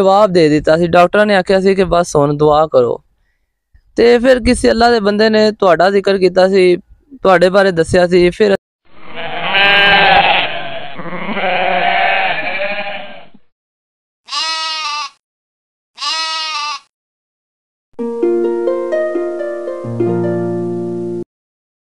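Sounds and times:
livestock bleating: 8.9 - 13.4, 14.3 - 15.2, 16.0 - 16.9.

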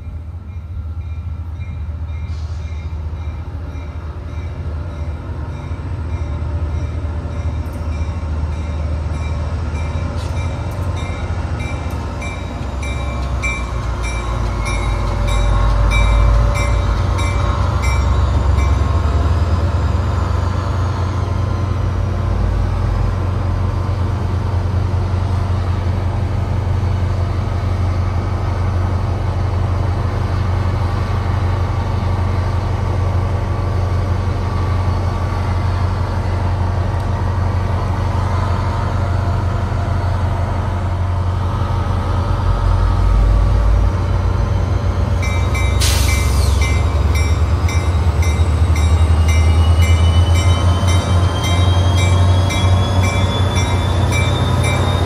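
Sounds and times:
locomotive bell ringing: 0.0 - 19.0, 45.2 - 55.0
diesel locomotive engine drone: 0.0 - 55.0.

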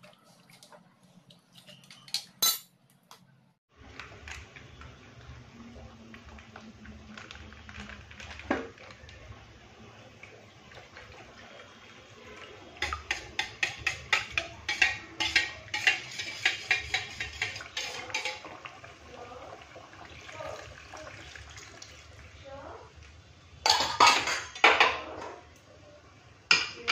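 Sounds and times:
spoon clinking against steel bowl: 12.8 - 18.4.

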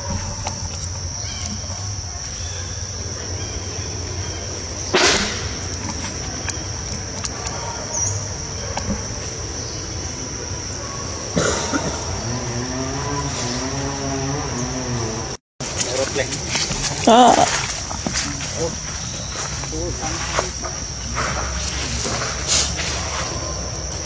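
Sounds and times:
insect drone: 0.0 - 24.0
sharp knock: 4.9 - 5.6.

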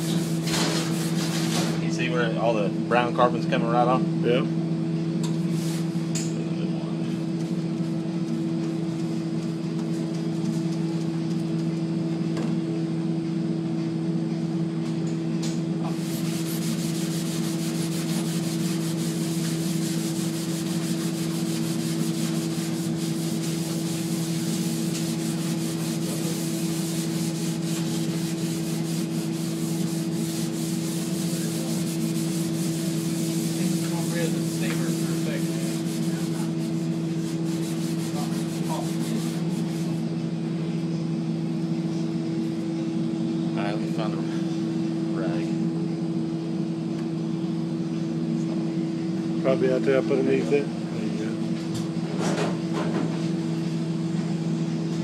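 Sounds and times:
steady low hum: 0.0 - 55.0
scrub pad scouring steel: 16.0 - 40.0.

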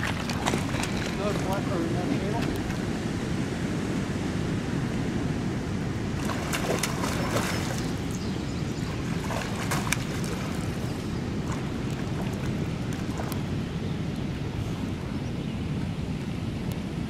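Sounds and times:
fish thrashing and splashing: 0.0 - 1.7, 6.2 - 8.2, 8.8 - 13.5
wind buffeting microphone: 0.0 - 17.0.

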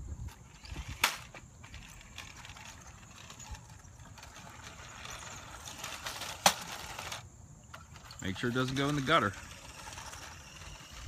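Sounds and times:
toy truck motor whirring: 0.2 - 11.0.

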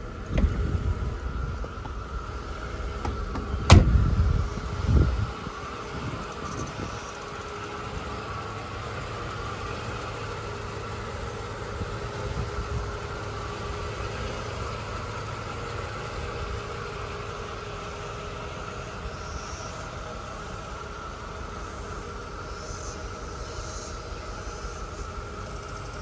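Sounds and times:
car engine idling: 0.0 - 26.0.

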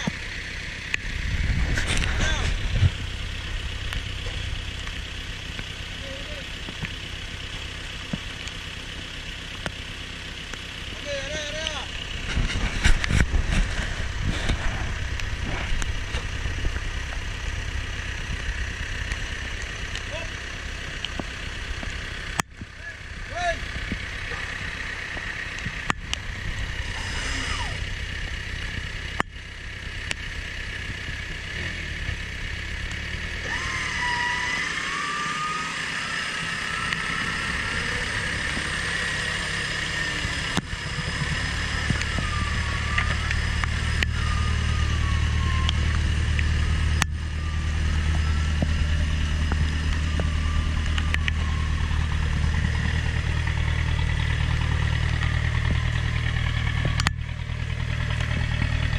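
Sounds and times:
truck engine under load: 0.0 - 58.9
wavering high whine: 22.9 - 31.3, 32.4 - 58.9.

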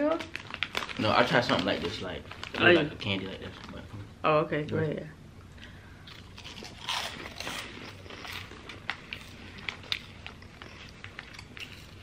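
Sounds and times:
crunchy snack chewing: 6.1 - 12.0.

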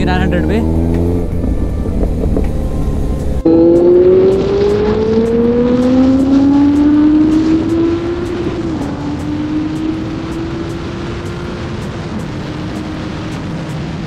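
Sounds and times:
motorcycle engine accelerating: 0.0 - 14.0
wind and road noise: 0.0 - 14.0.

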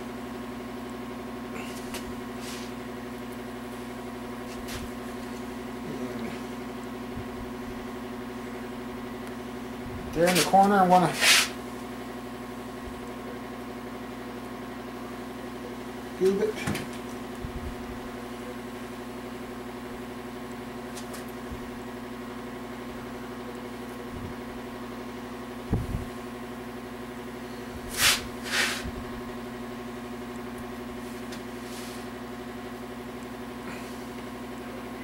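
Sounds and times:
machine hum: 0.0 - 35.0
short hissing noises: 11.2 - 11.6, 27.9 - 28.9.

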